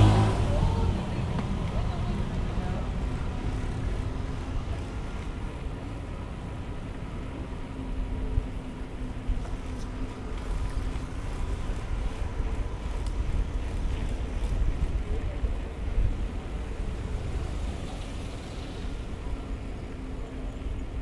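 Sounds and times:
bicycle tyres on pavement: 0.0 - 21.0
wind rumble on microphone: 0.0 - 21.0.

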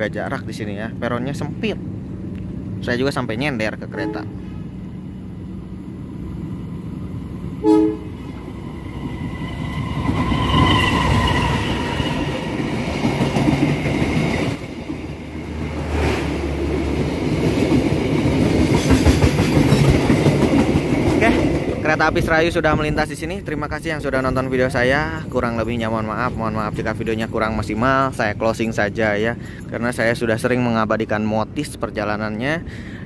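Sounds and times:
train horn blast: 3.9 - 4.6, 7.6 - 8.4
train wheels clattering: 16.8 - 21.8.

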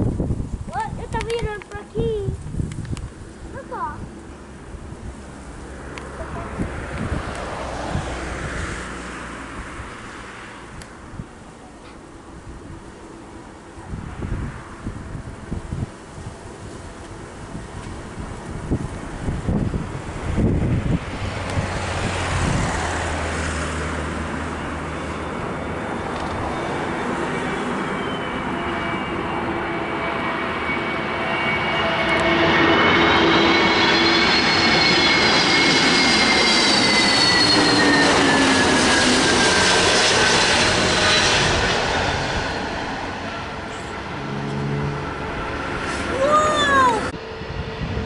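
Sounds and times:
jet plane flying past: 2.3 - 48.0.

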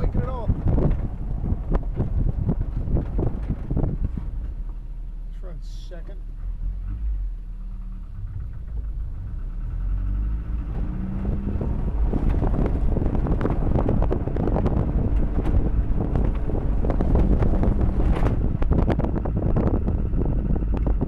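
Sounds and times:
man talking: 0.0 - 0.6, 5.3 - 6.2
pickup engine revving: 6.2 - 21.0.

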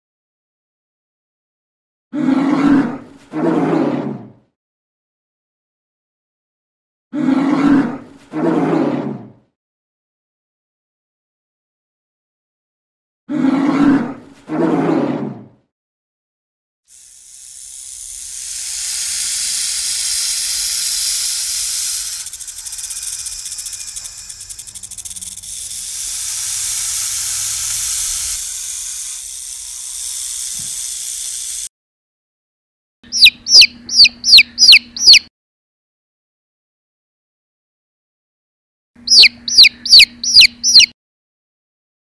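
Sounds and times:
snake hissing: 17.6 - 28.3
chick peeping: 33.1 - 35.3, 39.1 - 40.9.

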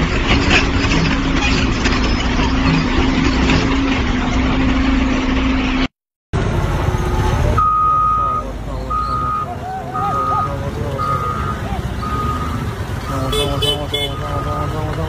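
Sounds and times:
heavy diesel engine drone: 0.0 - 15.0
reversing beeper: 6.9 - 14.9.

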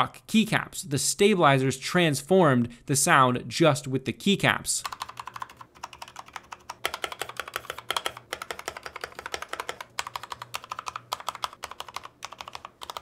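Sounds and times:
fast typing on mechanical keyboard: 4.8 - 13.0.

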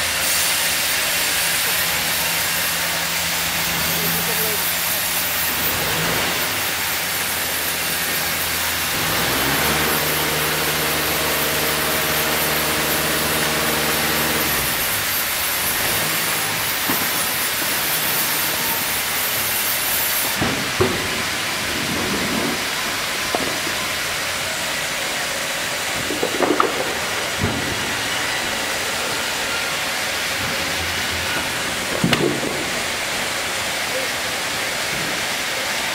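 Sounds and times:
band saw machinery hiss: 0.0 - 21.5
motor hum: 3.3 - 20.4
wood knocking against rollers: 10.6 - 24.4, 25.6 - 29.5, 30.2 - 33.3.

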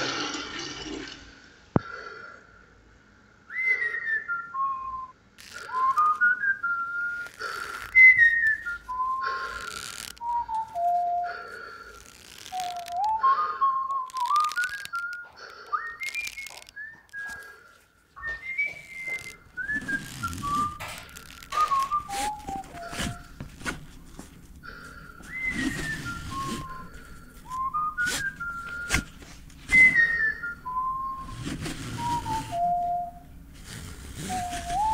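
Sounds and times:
person whistling a tune: 3.5 - 11.8, 12.4 - 17.6, 18.2 - 23.4, 24.6 - 29.1, 29.7 - 33.4, 34.2 - 34.9.

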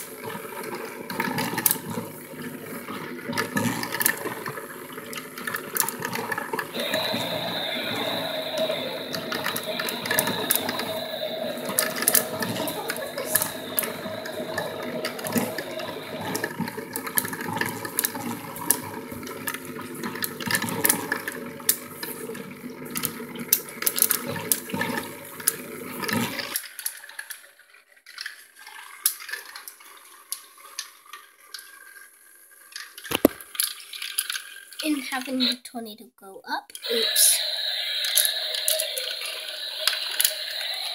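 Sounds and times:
water churning: 0.0 - 26.6
small motor whirring: 3.4 - 22.1, 36.8 - 40.9.

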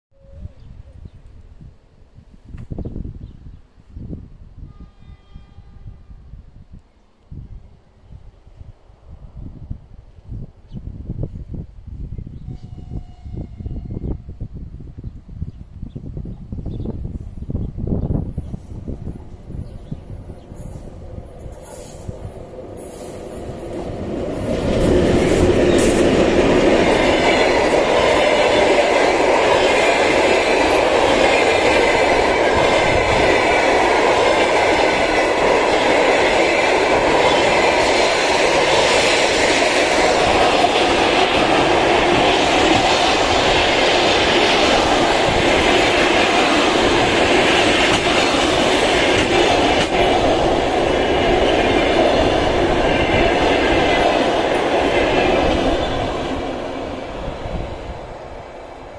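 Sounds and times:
electric locomotive passing: 3.0 - 58.9
train wheels clattering over rails: 18.4 - 57.5.

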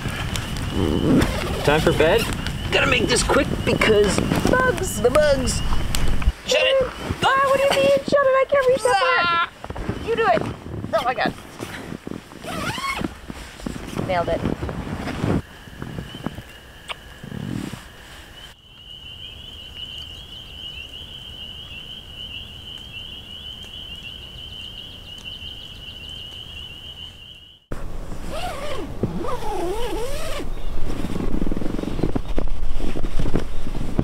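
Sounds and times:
high-pitched night chorus trilling: 0.1 - 10.4, 15.4 - 27.7
rustling: 4.0 - 18.6.

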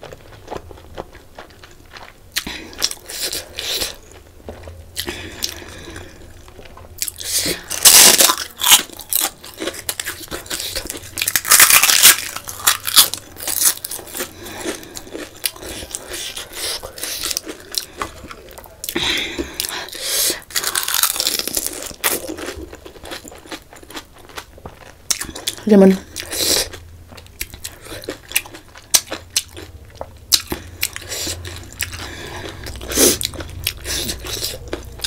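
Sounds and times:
chewing: 0.0 - 35.0
crisp shell crunching: 5.8 - 18.5, 20.4 - 25.5.

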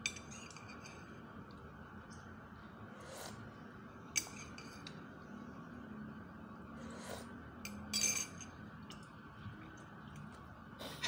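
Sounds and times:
cutlery clinking on ceramic plate: 7.7 - 8.5.

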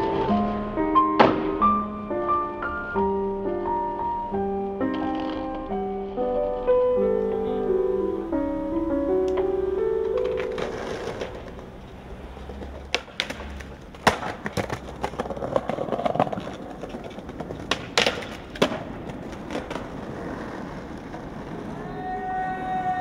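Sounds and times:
skateboard clacks: 0.0 - 1.7, 4.8 - 5.8, 9.2 - 23.0
skateboard wheels rolling on concrete: 0.0 - 23.0.

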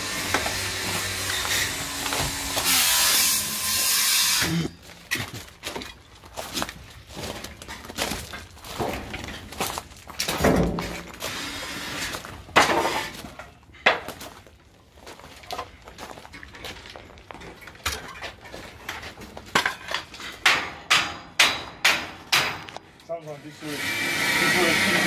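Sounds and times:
clattering and heavy knocks: 7.2 - 11.2, 17.7 - 22.8.

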